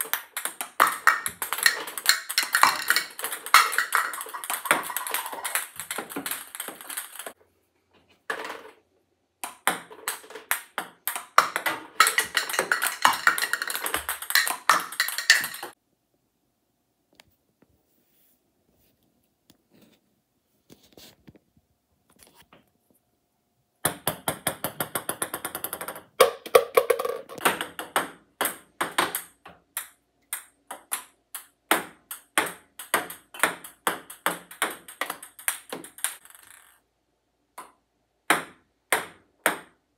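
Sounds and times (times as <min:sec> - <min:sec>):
ping pong balls bouncing: 0:00.0 - 0:07.4, 0:09.4 - 0:15.8, 0:23.8 - 0:36.9, 0:37.5 - 0:39.9.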